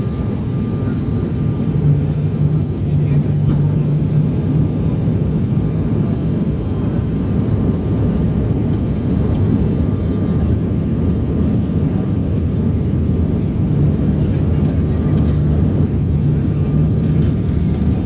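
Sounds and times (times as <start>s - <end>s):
aircraft cabin noise: 0.0s - 18.0s.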